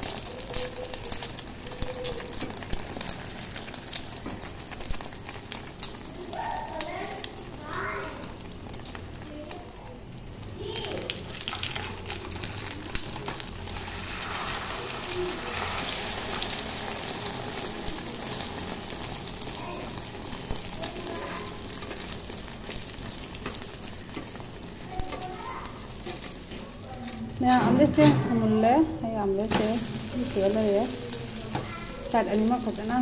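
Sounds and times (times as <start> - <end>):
egg sizzling in hot oil: 0.0 - 33.0
metal spatula scraping pan: 27.4 - 28.7.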